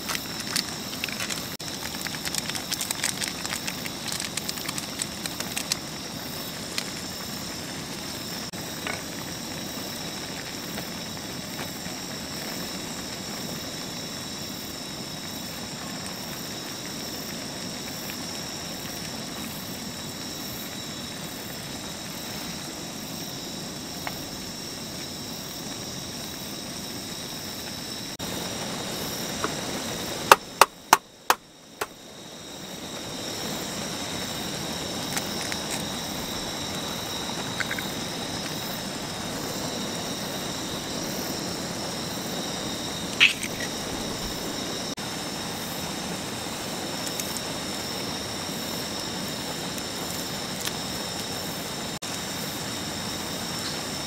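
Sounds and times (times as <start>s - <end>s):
crackling and rustling: 0.0s - 9.4s, 34.2s - 39.2s, 43.0s - 44.6s
noodles simmering and sizzling: 0.0s - 13.3s
sharp clicks: 43.2s - 43.7s.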